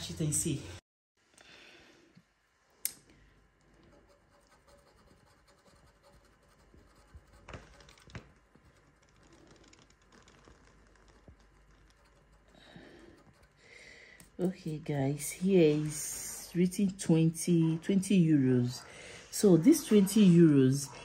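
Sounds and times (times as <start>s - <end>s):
finger scratching a scratch card: 3.9s - 13.6s.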